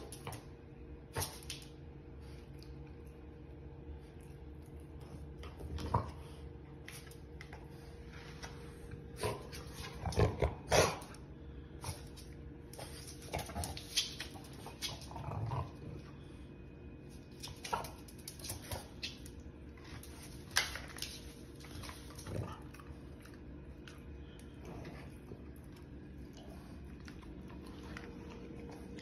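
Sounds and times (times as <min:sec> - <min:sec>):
dog barking and growling: 0:10.0 - 0:11.1.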